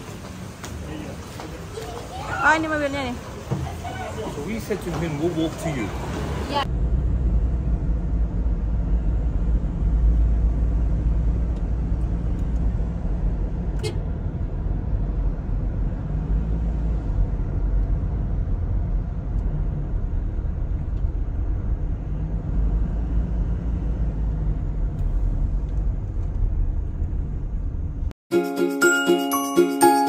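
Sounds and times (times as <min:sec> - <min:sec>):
car engine and road noise: 0:00.0 - 0:28.2
bright chiming music jingle: 0:28.3 - 0:30.0.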